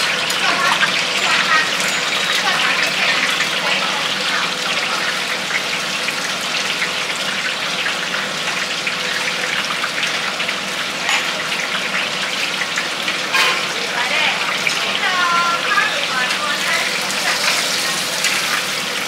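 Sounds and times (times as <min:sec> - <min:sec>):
food deep-frying in hot oil: 0:00.0 - 0:19.0.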